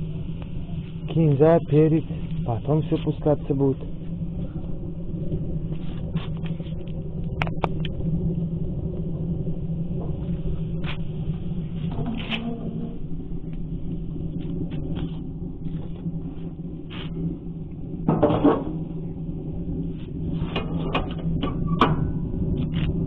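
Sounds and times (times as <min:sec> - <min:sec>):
steady hum: 0:00.0 - 0:23.0
grill lid scraping and clanking: 0:11.8 - 0:13.1, 0:18.1 - 0:18.8, 0:20.3 - 0:22.3.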